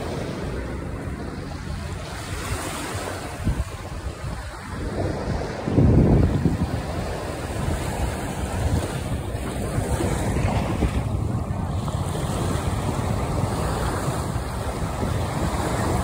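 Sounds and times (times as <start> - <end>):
small waves washing onto sand: 0.0 - 16.0
wind buffeting microphone: 0.0 - 16.0.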